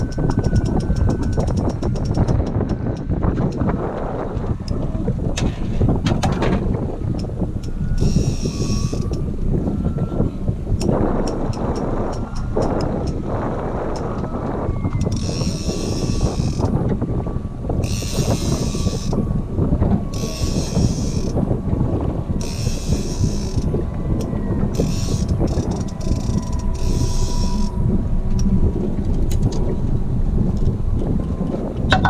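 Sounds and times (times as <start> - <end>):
fishing reel ratcheting: 0.0 - 3.0, 7.2 - 9.2, 15.0 - 16.7, 17.8 - 19.2, 20.1 - 21.4, 22.4 - 27.8
boat rumble: 0.0 - 32.0
wind: 0.0 - 32.0.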